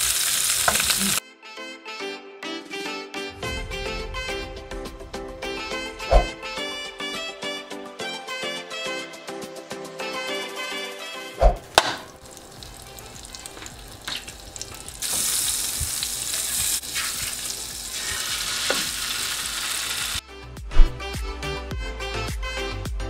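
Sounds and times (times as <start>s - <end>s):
butter sizzling in a frying pan: 0.0s - 1.2s, 12.2s - 20.2s
background music: 1.2s - 18.0s, 20.2s - 23.0s.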